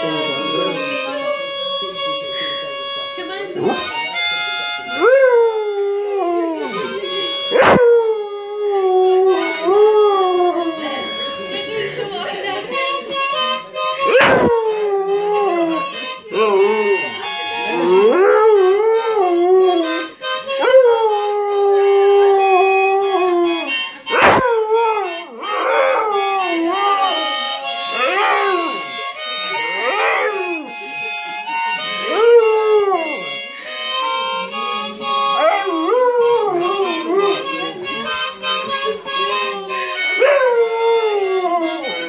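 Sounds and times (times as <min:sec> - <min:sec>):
harmonica chords: 0:00.0 - 0:42.0
dog howling: 0:14.1 - 0:15.9, 0:17.7 - 0:28.8, 0:29.8 - 0:30.7, 0:32.0 - 0:33.3, 0:35.4 - 0:37.5, 0:40.2 - 0:41.9.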